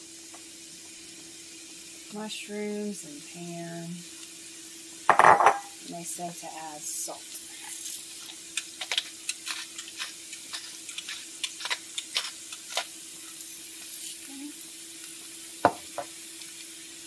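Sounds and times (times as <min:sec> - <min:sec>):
mushrooms sizzling in oil: 0:00.0 - 0:17.0
crackling pops: 0:08.2 - 0:12.9.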